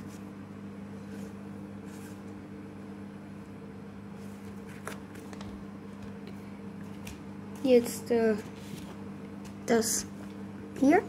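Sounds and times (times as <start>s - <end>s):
low electrical hum: 0.0s - 11.0s
trading cards flipped through: 4.3s - 7.2s.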